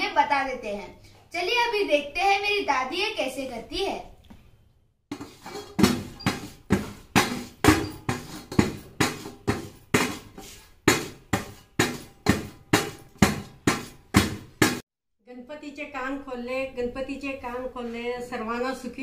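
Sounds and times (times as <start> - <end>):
wooden sticks beating steel plate: 5.1 - 14.8.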